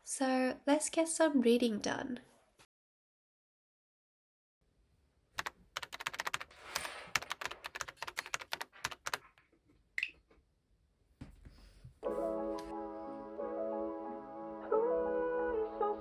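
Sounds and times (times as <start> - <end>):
quick irregular clicks: 5.4 - 6.5, 7.2 - 9.3.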